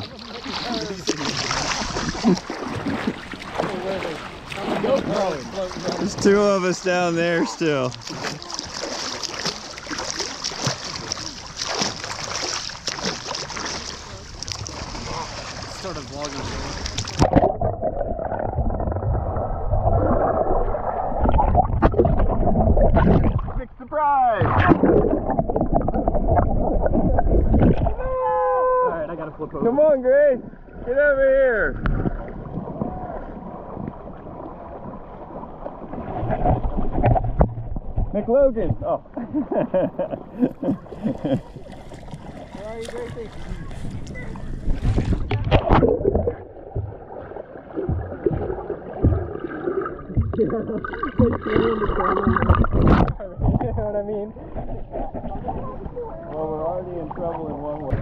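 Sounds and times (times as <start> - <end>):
water lapping and splashing: 0.0 - 58.0.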